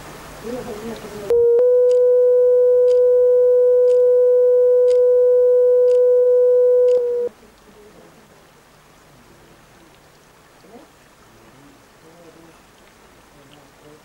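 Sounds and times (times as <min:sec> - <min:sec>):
faint hiss: 0:00.0 - 0:14.0
steady electronic tone: 0:01.3 - 0:07.3
faint ticks: 0:02.8 - 0:03.1, 0:03.8 - 0:04.1, 0:04.8 - 0:05.1, 0:05.8 - 0:07.7.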